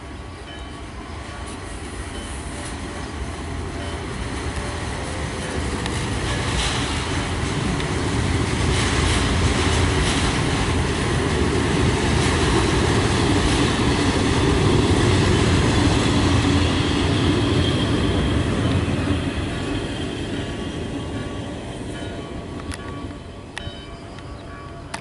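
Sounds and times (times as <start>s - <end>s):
train wheels rumbling on rails: 0.0s - 25.0s
sharp rail clicks: 5.4s - 10.9s, 21.9s - 25.0s.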